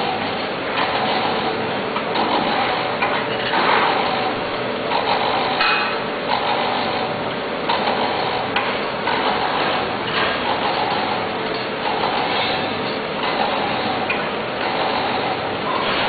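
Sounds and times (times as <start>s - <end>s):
packing machine clattering: 0.0s - 7.0s.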